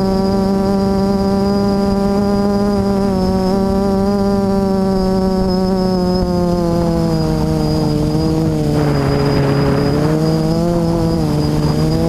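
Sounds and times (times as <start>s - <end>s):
drone motors whining: 0.1s - 12.0s
rush of air: 8.5s - 11.9s.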